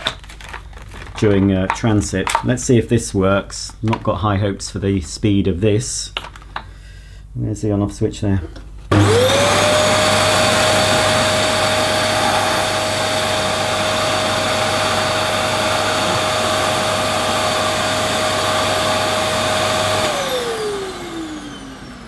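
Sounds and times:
vacuum cleaner running: 0:08.9 - 0:22.0
vacuum motor running down: 0:08.9 - 0:22.0.

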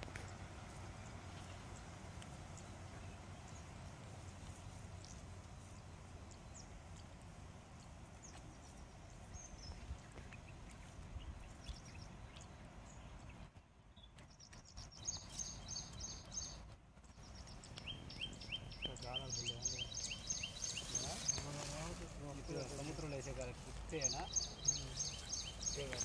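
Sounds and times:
faint background noise: 0:00.0 - 0:26.0
high chirps: 0:17.2 - 0:21.8.

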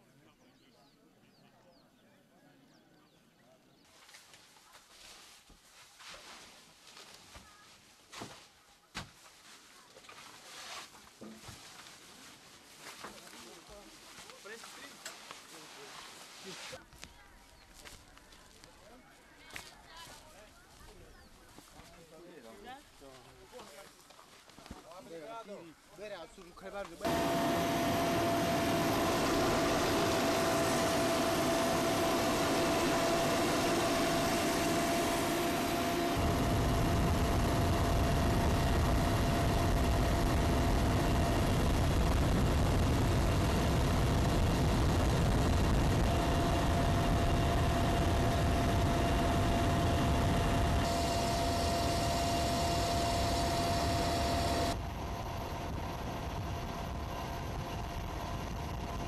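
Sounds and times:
helicopter engine and rotor: 0:27.0 - 0:59.0.

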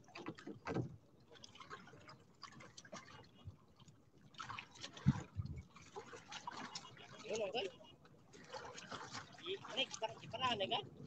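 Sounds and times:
water lapping against a boat: 0:00.0 - 0:11.0.

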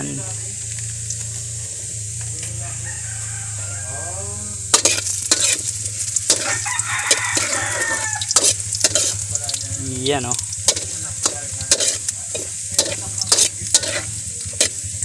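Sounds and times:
food sizzling in hot oil: 0:00.0 - 0:15.0
rooster crowing: 0:02.3 - 0:04.6, 0:06.3 - 0:08.4
metal ladle scraping wok: 0:04.5 - 0:15.0.

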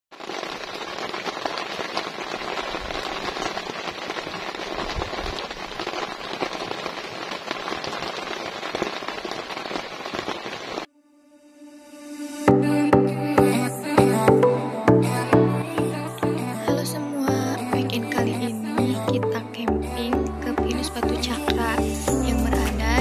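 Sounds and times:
heavy rain on tent fabric: 0:00.1 - 0:10.9.

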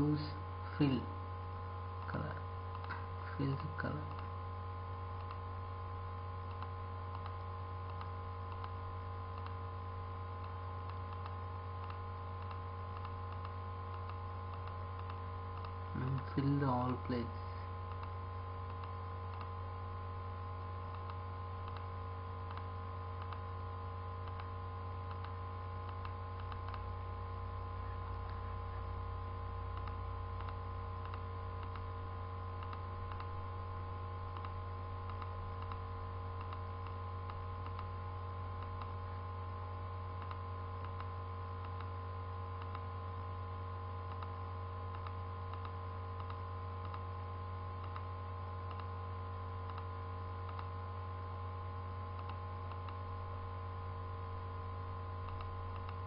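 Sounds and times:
faint steady tones: 0:00.0 - 0:56.0
low electrical hum: 0:00.0 - 0:56.0
computer mouse clicking: 0:05.2 - 0:05.4, 0:06.4 - 0:09.6, 0:10.4 - 0:16.3, 0:17.9 - 0:19.5, 0:20.8 - 0:23.5, 0:24.2 - 0:26.9, 0:29.8 - 0:31.9, 0:32.6 - 0:33.4, 0:34.3 - 0:37.9, 0:38.6 - 0:39.0, 0:40.2 - 0:41.9, 0:42.6 - 0:42.9, 0:44.1 - 0:47.1, 0:47.8 - 0:49.0, 0:49.7 - 0:50.7, 0:52.1 - 0:53.1, 0:55.2 - 0:56.0.

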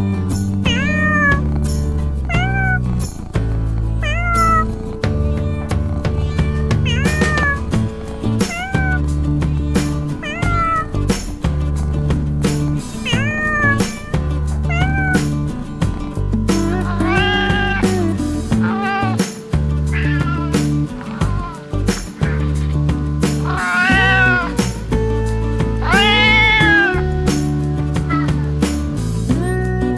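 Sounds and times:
background music: 0:00.0 - 0:29.9
cat meowing: 0:00.6 - 0:01.4, 0:02.2 - 0:03.0, 0:04.0 - 0:11.4, 0:13.0 - 0:15.5, 0:16.6 - 0:22.5, 0:23.4 - 0:24.9, 0:25.7 - 0:28.6.

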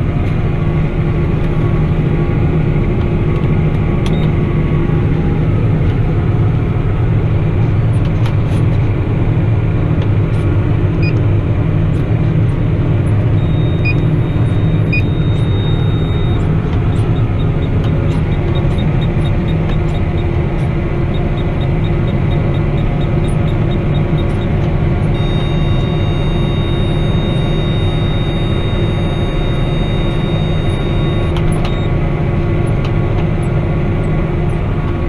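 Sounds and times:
tractor diesel engine running: 0:00.0 - 0:35.0
click: 0:03.4 - 0:04.3, 0:30.7 - 0:31.8
thin high whine: 0:25.1 - 0:31.4.

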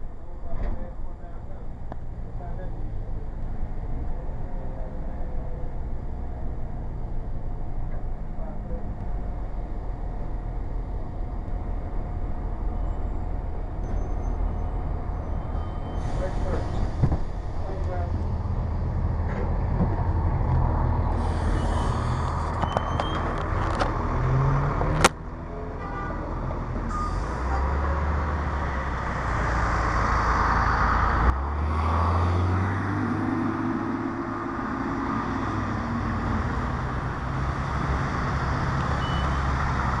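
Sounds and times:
bus diesel engine accelerating: 0:00.0 - 0:40.0
tyres hissing on wet pavement: 0:21.2 - 0:22.3.

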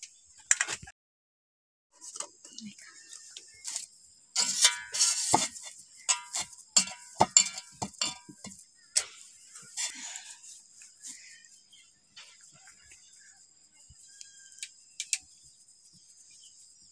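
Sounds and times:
high insect chirring: 0:02.4 - 0:16.9
knocks and clinks from metal bowl: 0:04.4 - 0:08.6.

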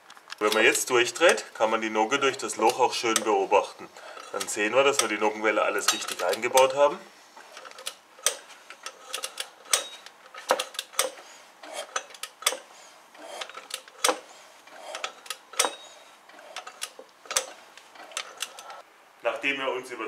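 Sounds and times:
sharp metallic clicks: 0:07.4 - 0:18.8.

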